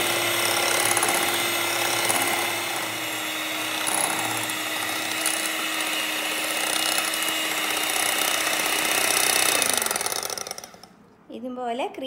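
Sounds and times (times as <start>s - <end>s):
electric hand mixer whirring: 0.0s - 10.9s.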